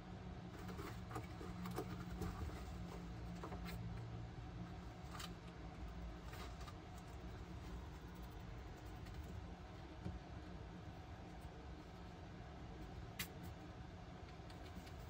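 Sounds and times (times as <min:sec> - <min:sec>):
fan humming: 0:00.0 - 0:15.0
rat claws scratching: 0:04.8 - 0:10.0.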